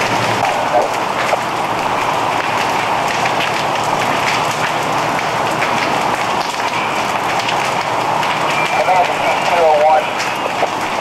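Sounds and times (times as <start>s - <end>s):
building fire roaring and crackling: 0.0s - 11.0s.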